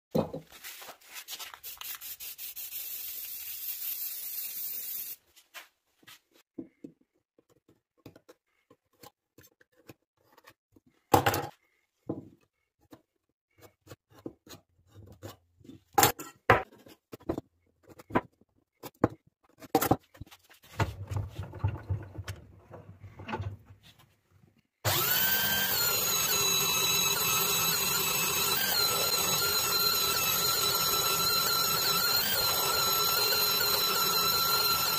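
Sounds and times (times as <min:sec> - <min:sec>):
wood and tools knocking: 0:16.0 - 0:23.8
belt sander sanding wood: 0:24.9 - 0:34.9.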